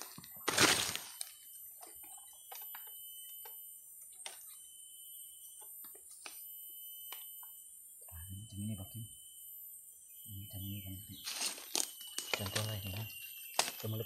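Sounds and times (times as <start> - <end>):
twigs clicking and snapping: 0.0 - 2.9, 11.2 - 14.0
faint steady high tone: 0.0 - 14.0.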